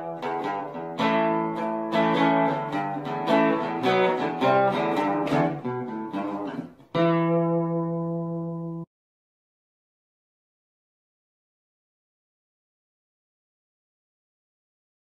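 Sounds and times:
acoustic guitar picking: 0.0s - 8.7s.

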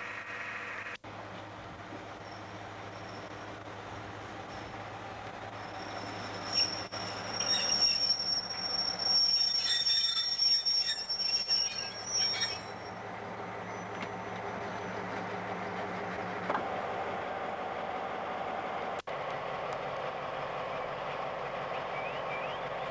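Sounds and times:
diesel engine running: 0.0s - 7.4s, 12.6s - 22.9s
locomotive brakes squealing: 2.2s - 3.6s, 4.5s - 15.9s.

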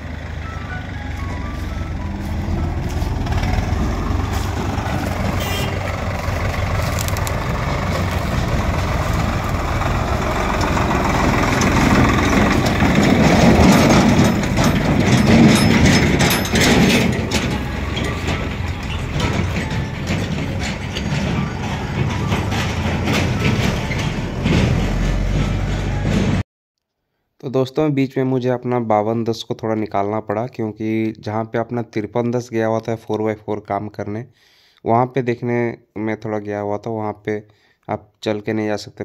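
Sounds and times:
tractor engines under load: 0.0s - 26.4s
trolleys knocking and rattling: 0.0s - 26.4s.

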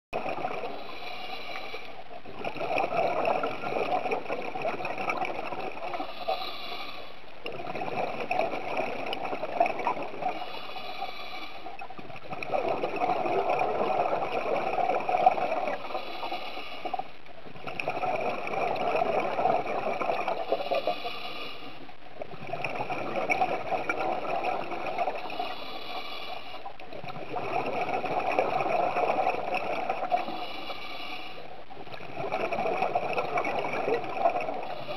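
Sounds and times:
exhaled bubbles: 0.2s - 21.4s, 22.2s - 34.9s
diver breathing through regulator: 0.6s - 2.0s, 5.9s - 7.2s, 10.2s - 11.8s, 15.3s - 17.1s, 20.3s - 21.9s, 24.5s - 26.7s, 29.1s - 31.5s, 34.4s - 34.9s.

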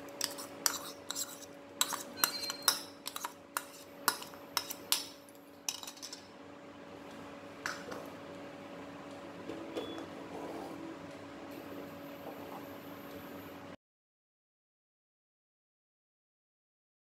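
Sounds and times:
steady low hum: 0.0s - 13.8s
spoon and bowl clinking on pan: 1.8s - 6.2s.

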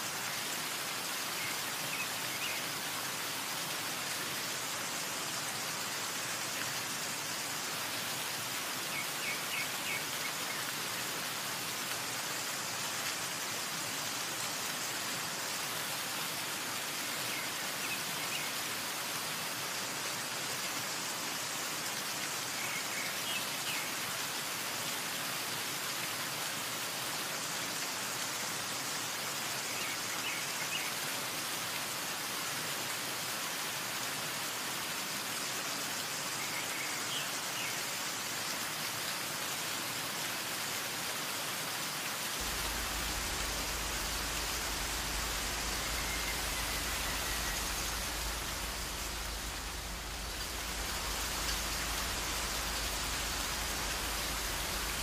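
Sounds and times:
water falling down rock face: 0.0s - 55.0s.

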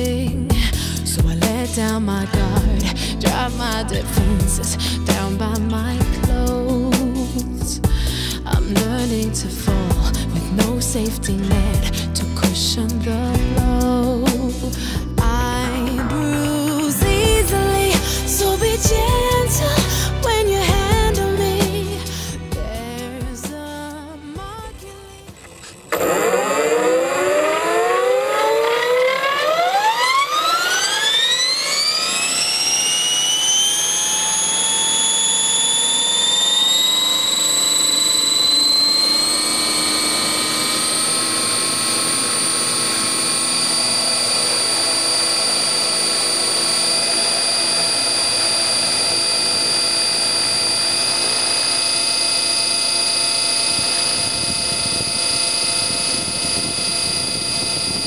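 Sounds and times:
rc helicopter motor whine: 15.8s - 58.0s.

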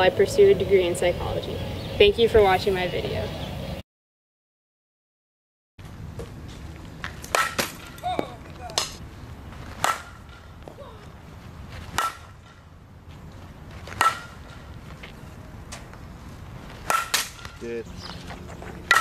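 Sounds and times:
bat cracking ball: 7.0s - 9.0s, 9.6s - 11.2s, 11.8s - 12.7s, 13.8s - 15.0s, 16.7s - 19.0s.

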